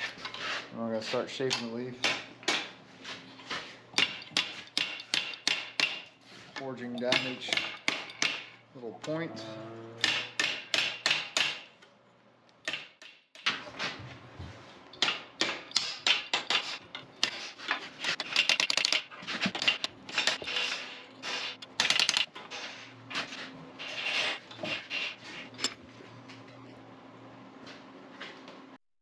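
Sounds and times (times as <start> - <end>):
hammer striking hot steel: 10.0 - 11.7.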